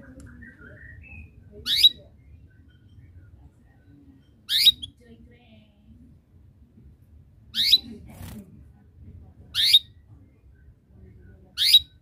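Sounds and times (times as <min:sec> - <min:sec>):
canary rising chirp calls: 0:07.5 - 0:07.8.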